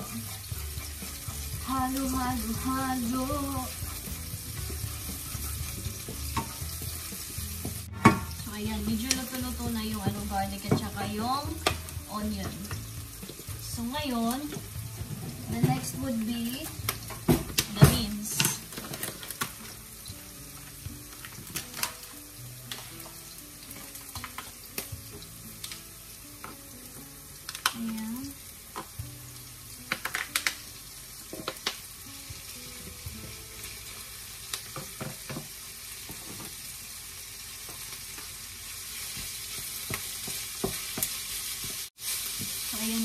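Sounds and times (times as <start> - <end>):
meat sizzling in a frying pan: 0.0 - 43.0.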